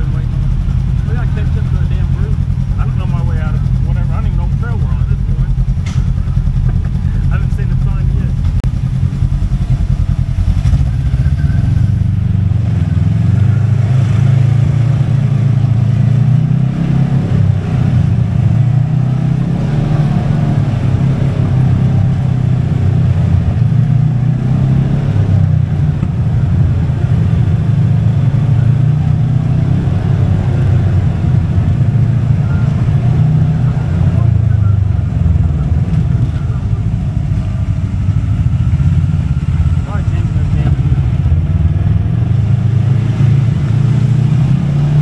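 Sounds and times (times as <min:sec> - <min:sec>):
utility vehicle engine running: 0:00.0 - 0:45.0.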